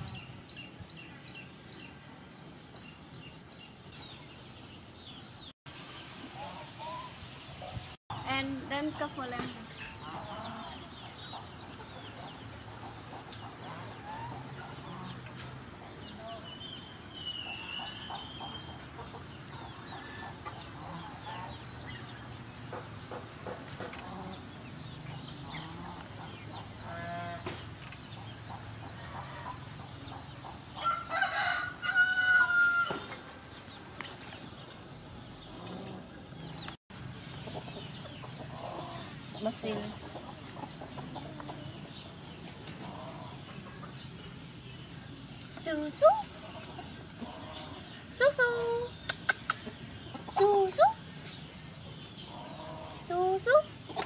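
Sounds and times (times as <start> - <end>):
chickens clucking: 6.3 - 54.0
rooster crowing: 30.8 - 33.1.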